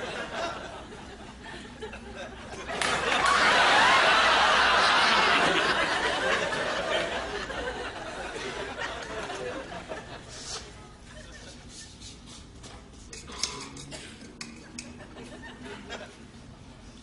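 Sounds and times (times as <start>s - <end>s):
audience laughter: 0.0s - 11.9s, 14.8s - 16.2s.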